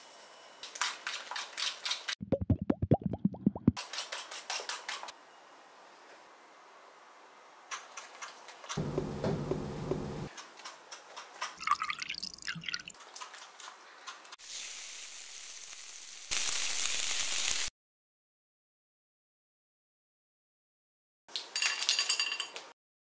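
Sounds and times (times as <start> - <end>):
batter sizzling in frying pan: 14.4 - 17.7.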